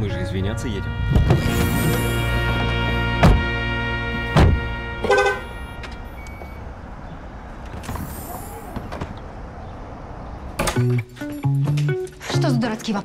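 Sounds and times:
street noise: 0.0s - 13.0s
car door slamming: 3.2s - 3.6s, 4.3s - 5.5s.

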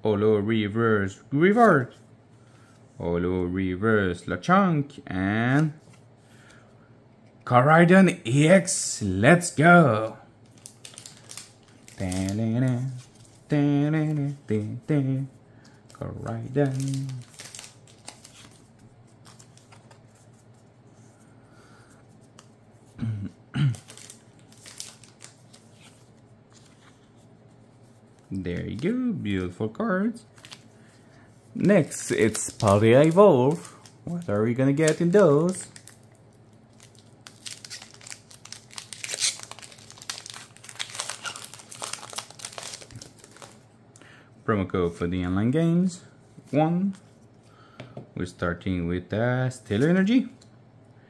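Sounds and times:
cards rustling: 9.4s - 23.0s, 23.7s - 43.6s
foil wrapper tearing and crinkling: 10.5s - 13.2s, 16.2s - 18.6s, 23.6s - 25.7s, 31.8s - 43.6s.

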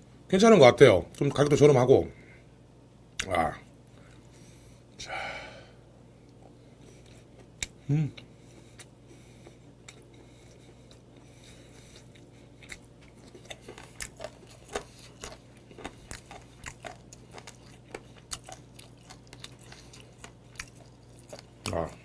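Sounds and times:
wet crunchy chewing: 8.5s - 22.0s.

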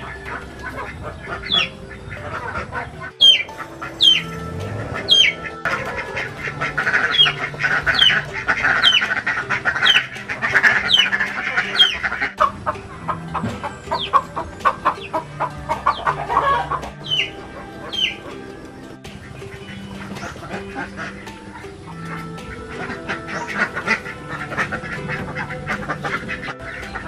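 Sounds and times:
bird high falling peeps: 0.0s - 12.5s
poultry clucking: 0.0s - 27.0s.

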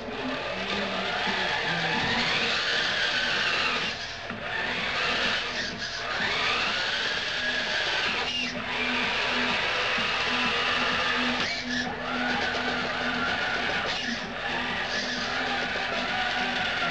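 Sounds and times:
toy truck motor whining: 0.0s - 16.9s.

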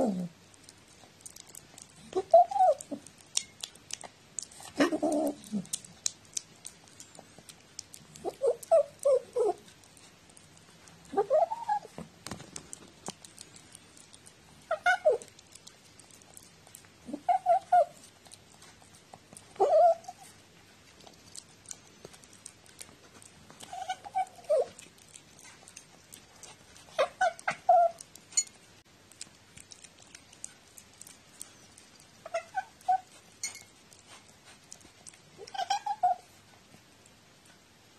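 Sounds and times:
cat mewing: 35.4s - 36.3s.

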